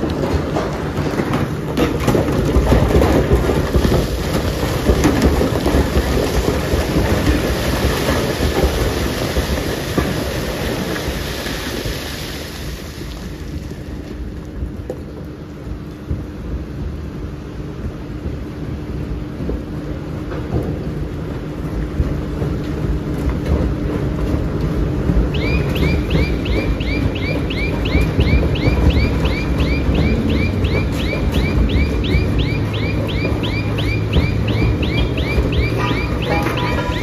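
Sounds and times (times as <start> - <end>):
crackle and hiss of tumbling rock: 0.0 - 17.0
rock crusher rumbling and clattering: 0.0 - 17.1, 17.7 - 37.0.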